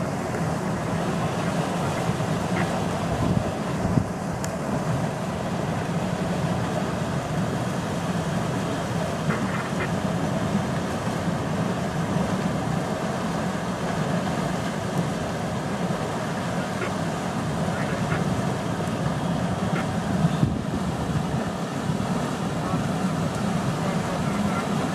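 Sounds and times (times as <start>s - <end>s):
hooves splashing through water: 4.6s - 24.9s
herd grunting calls: 9.3s - 9.9s.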